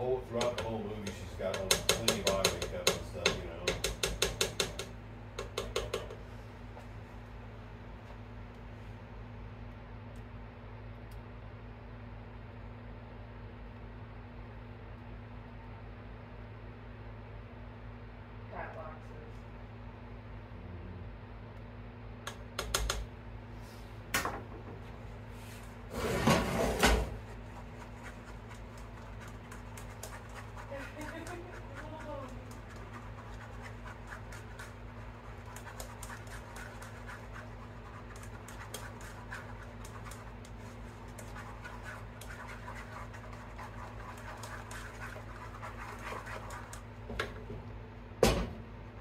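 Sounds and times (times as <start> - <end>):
whisk clinking against a pot: 0.4 - 6.2, 26.8 - 47.0
pot scraping on stove grate: 25.3 - 47.1.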